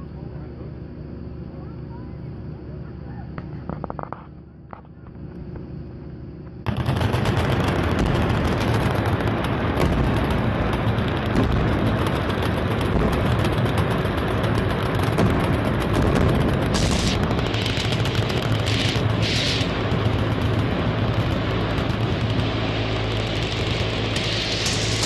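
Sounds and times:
machine guns firing: 0:06.7 - 0:25.0.

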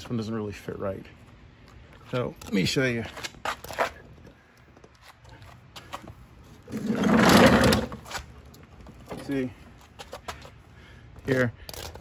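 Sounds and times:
mower scraping on concrete: 0:06.7 - 0:08.2.

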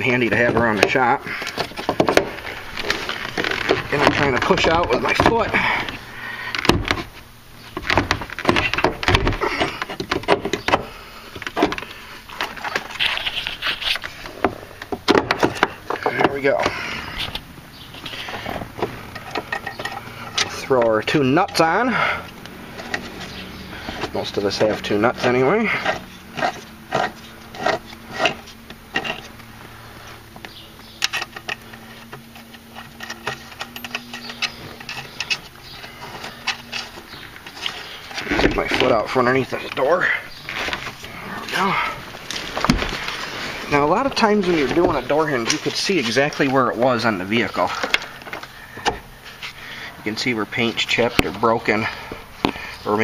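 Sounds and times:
low steady hum: 0:00.0 - 0:53.0
metal clicks knocks and scraping: 0:00.1 - 0:29.5, 0:30.3 - 0:41.6.

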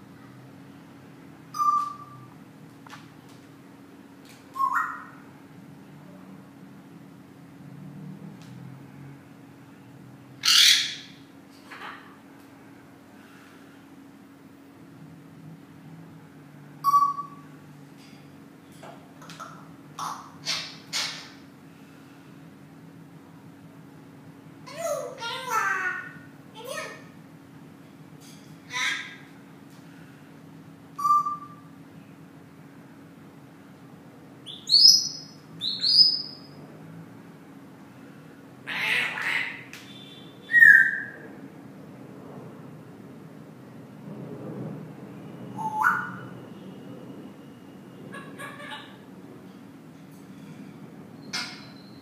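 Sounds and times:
parrot whistle: 0:01.5 - 0:02.2, 0:04.6 - 0:05.2, 0:16.8 - 0:17.5, 0:31.0 - 0:31.7, 0:39.9 - 0:41.2, 0:45.6 - 0:46.3
parrot squawks: 0:04.6 - 0:05.2, 0:10.4 - 0:11.2, 0:20.0 - 0:21.4, 0:28.7 - 0:29.2, 0:38.6 - 0:39.7, 0:40.4 - 0:41.2, 0:45.6 - 0:46.3, 0:48.1 - 0:49.0.

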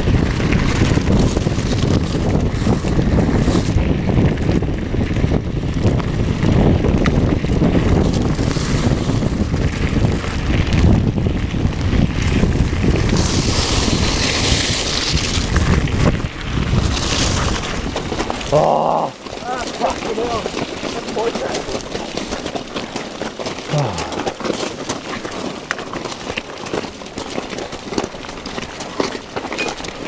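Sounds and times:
wind buffeting microphone: 0:00.0 - 0:22.2
tyres rumbling over gravel: 0:00.0 - 0:30.0.

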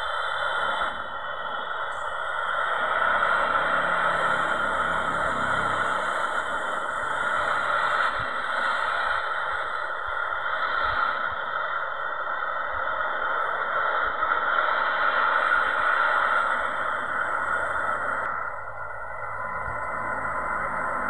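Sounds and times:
jet engines roaring: 0:00.0 - 0:10.4.

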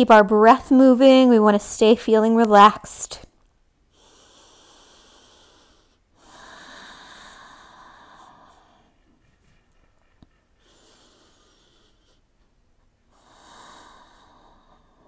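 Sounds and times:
woman breathing: 0:03.9 - 0:15.0.

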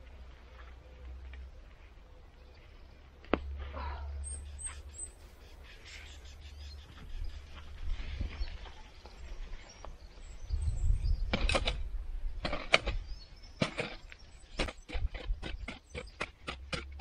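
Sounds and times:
bird chirping: 0:00.8 - 0:17.0
hoe chopping weeds: 0:11.2 - 0:17.0.

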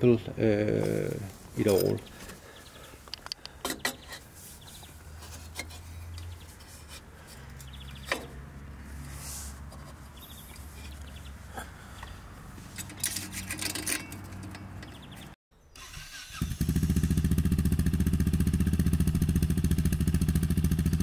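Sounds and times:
metal clicks: 0:03.1 - 0:04.2, 0:12.8 - 0:15.3
light metal scraping: 0:03.6 - 0:11.3, 0:12.0 - 0:15.3.

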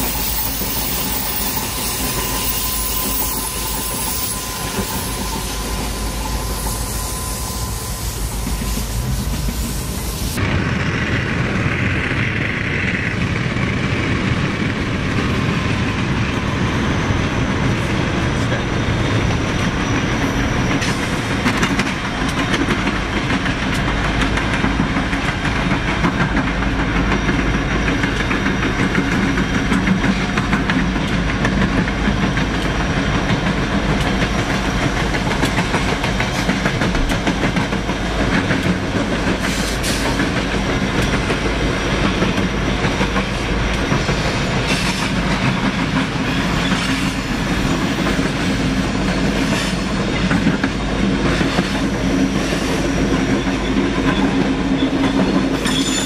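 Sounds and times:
train low rumble: 0:00.0 - 0:56.0
train wheels clicking over rail joints: 0:19.1 - 0:56.0.

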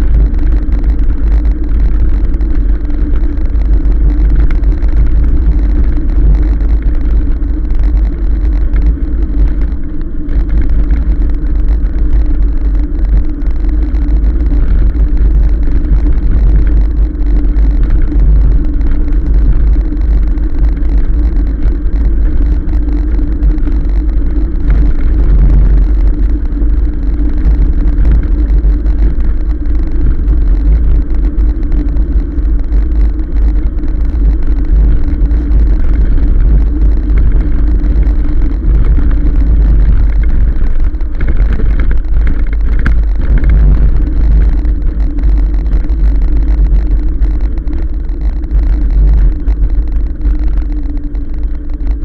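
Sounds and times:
motor hum: 0:00.0 - 0:52.0
tyre noise on road: 0:00.0 - 0:52.0
wind buffeting microphone: 0:00.0 - 0:52.0.

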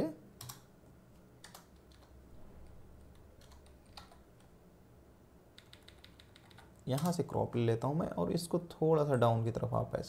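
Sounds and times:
faint low hum: 0:00.0 - 0:10.0
keyboard keystrokes: 0:00.4 - 0:00.7, 0:01.4 - 0:02.1, 0:03.1 - 0:04.5, 0:05.6 - 0:07.2.

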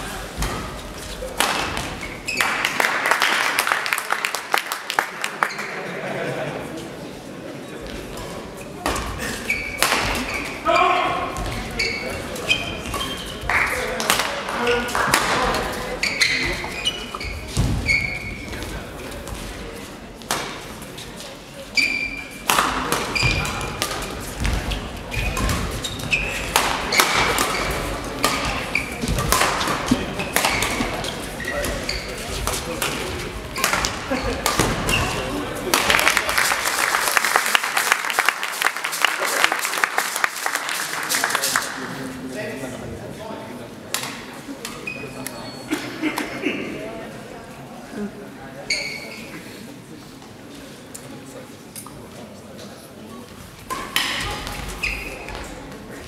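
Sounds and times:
shoes squeaking on court: 0:00.4 - 0:02.6, 0:07.8 - 0:13.9, 0:15.9 - 0:18.8, 0:21.7 - 0:35.5, 0:44.7 - 0:45.7, 0:48.7 - 0:49.3, 0:53.2 - 0:55.7
racket hitting shuttlecock: 0:01.3 - 0:02.0, 0:08.8 - 0:10.5, 0:12.9 - 0:15.7, 0:20.2 - 0:20.6, 0:22.4 - 0:36.2, 0:53.7 - 0:55.4
racket striking shuttlecock: 0:09.7 - 0:10.4, 0:26.4 - 0:31.0, 0:32.4 - 0:36.0.

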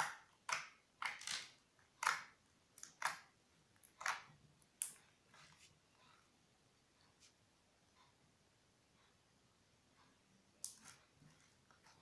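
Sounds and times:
slime squelching and popping: 0:00.0 - 0:05.0.

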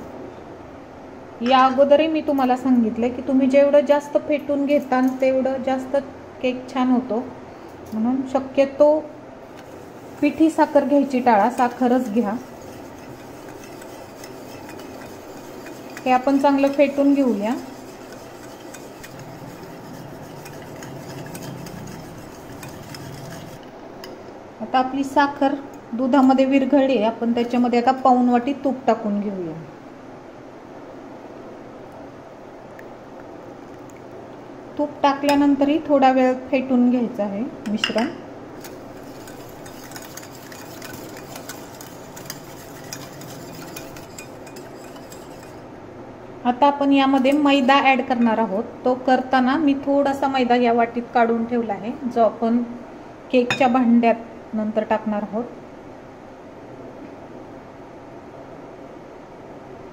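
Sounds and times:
liquid swishing: 0:09.6 - 0:23.6, 0:38.6 - 0:45.7
whisk clicking against glass: 0:11.4 - 0:23.6, 0:38.6 - 0:45.6.

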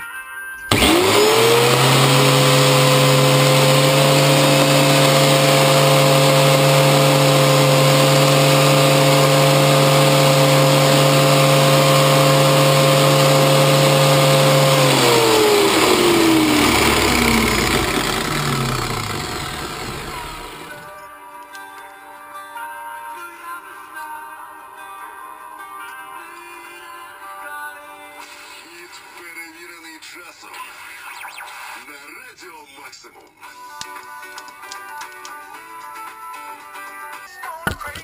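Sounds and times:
angle grinder whine: 0:00.6 - 0:20.9.

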